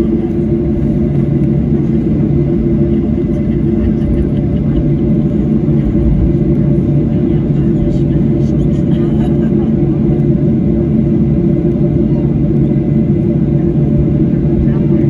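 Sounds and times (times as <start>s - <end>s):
airplane cabin rumble: 0.0s - 15.0s
jet engines idling hum: 0.0s - 15.0s.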